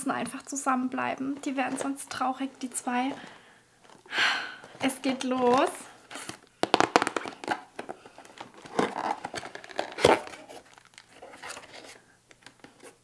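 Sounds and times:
cardboard box tearing and crinkling: 8.4 - 12.0.

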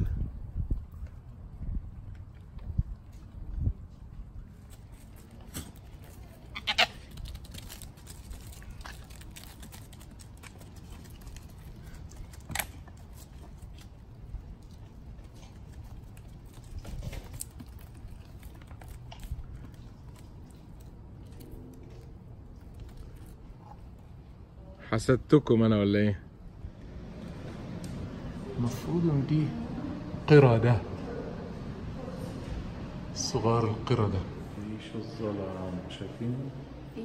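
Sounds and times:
hooves shuffling: 0.0 - 24.5
goats butting heads: 2.2 - 24.2.

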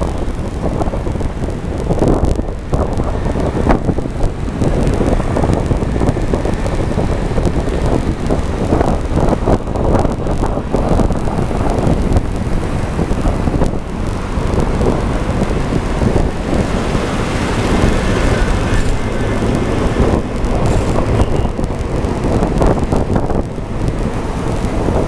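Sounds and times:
car road and engine noise: 0.0 - 25.0
wind buffeting microphone: 0.0 - 25.0.

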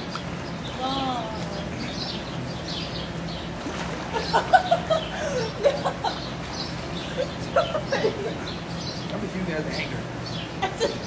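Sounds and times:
water splashing: 0.0 - 8.5.

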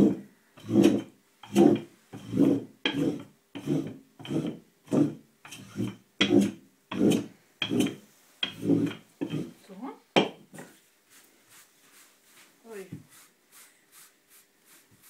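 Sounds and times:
rolling pin rubbing over dough: 0.0 - 9.7, 10.6 - 15.0.

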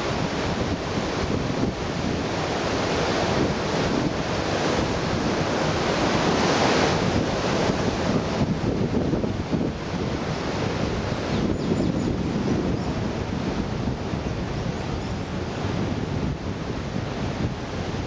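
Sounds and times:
sea surf washing onto beach: 0.0 - 18.0
wind buffeting microphone: 0.0 - 18.0.

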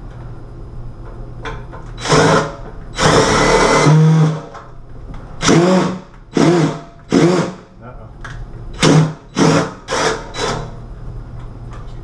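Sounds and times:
cordless drill driving screws: 2.0 - 4.4, 8.8 - 10.7.

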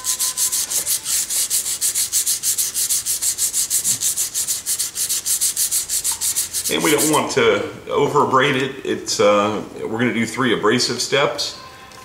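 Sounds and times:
sandpaper scraping metal: 0.0 - 7.3.

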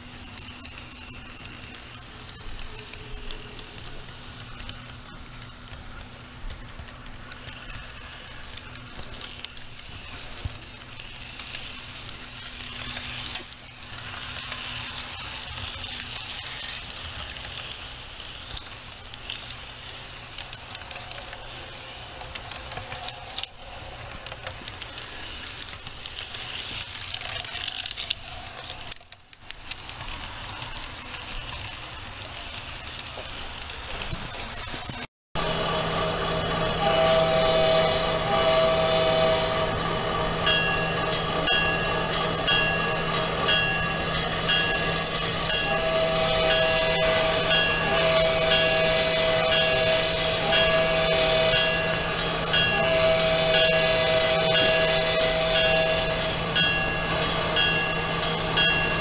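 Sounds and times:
model train rattling on track: 0.0 - 59.0
low hum: 35.4 - 59.0.

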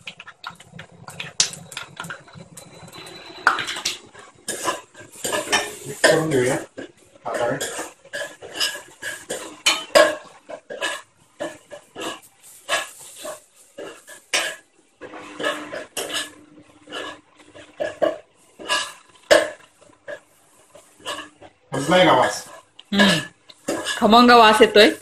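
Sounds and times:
spoon scraping cooking pot: 0.1 - 22.8, 23.5 - 24.2.

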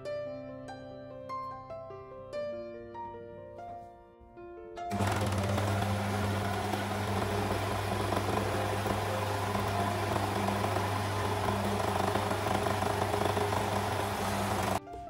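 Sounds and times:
overlock sewing machine running: 4.9 - 14.8.

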